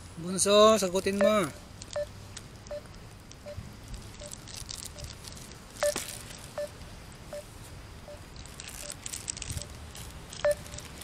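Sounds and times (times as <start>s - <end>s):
phone ringing beeps: 1.2s - 2.1s, 10.4s - 10.9s.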